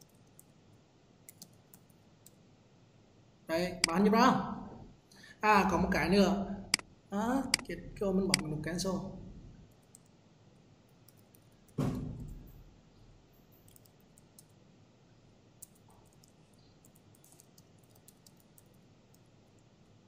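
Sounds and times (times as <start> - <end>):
keyboard typing: 1.3 - 1.9, 11.0 - 12.4, 13.4 - 14.6, 15.6 - 19.6
thump: 11.8 - 12.4.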